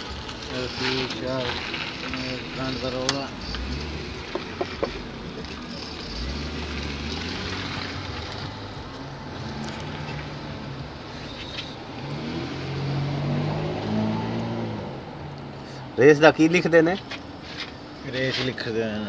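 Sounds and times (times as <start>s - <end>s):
car engine running: 0.0s - 11.8s.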